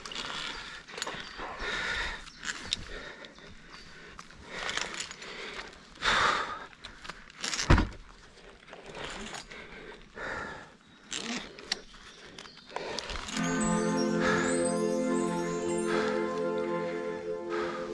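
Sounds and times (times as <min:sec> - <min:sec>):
rope rustling and metal clinking: 0:00.0 - 0:01.6, 0:02.2 - 0:06.0, 0:06.8 - 0:10.2, 0:11.0 - 0:13.7
heavy breathing: 0:00.3 - 0:07.5, 0:08.7 - 0:17.9.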